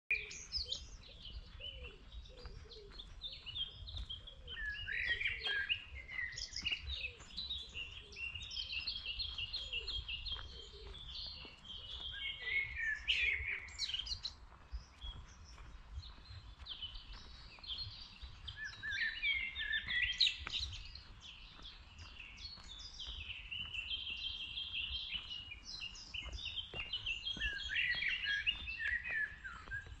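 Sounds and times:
songbirds singing: 0.1s - 30.0s.

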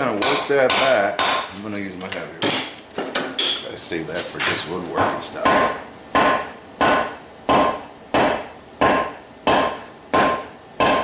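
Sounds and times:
mallet striking metal on anvil: 0.0s - 1.6s, 5.4s - 11.0s.

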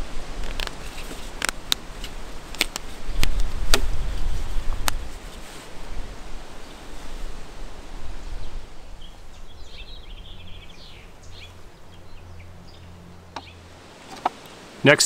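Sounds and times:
broad rustling noise: 0.0s - 11.8s
low steady hum: 0.0s - 15.0s
small bird chirping: 8.4s - 13.6s.

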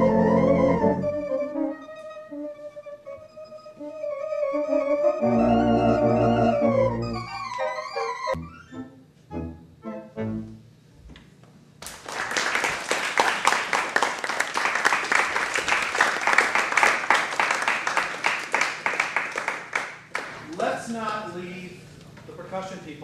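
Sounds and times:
organ playing chords: 0.0s - 10.9s
audience applause: 11.8s - 20.4s.

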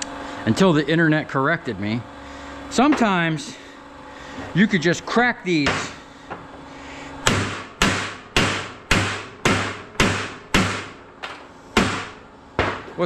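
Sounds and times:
hammer striking metal core: 7.2s - 11.0s.

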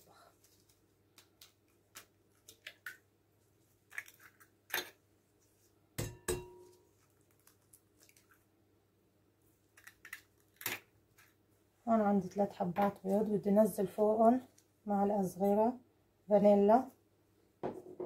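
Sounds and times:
egg knocking on glass bowl: 6.0s - 6.7s.

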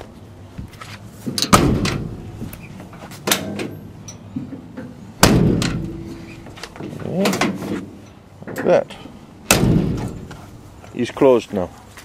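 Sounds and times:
steel door slamming: 1.4s - 2.4s, 5.2s - 7.9s, 9.4s - 10.3s.

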